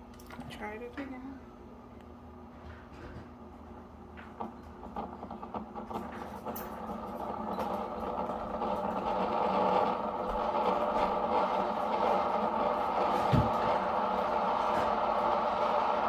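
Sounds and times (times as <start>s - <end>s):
heater rushing hum: 0.0s - 16.0s
coffee maker ticks and crackles: 4.1s - 16.0s.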